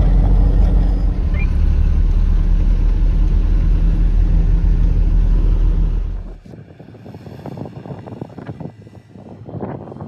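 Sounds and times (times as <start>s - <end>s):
diesel truck engine droning: 0.0s - 6.6s
road and tyre noise: 0.0s - 10.0s.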